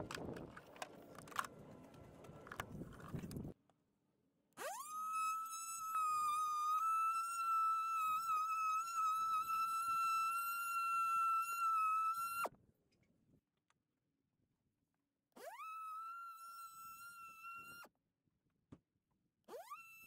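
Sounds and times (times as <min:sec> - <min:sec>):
oscillating multi-tool whine: 0:04.6 - 0:12.5, 0:15.4 - 0:17.9, 0:19.5 - 0:20.0.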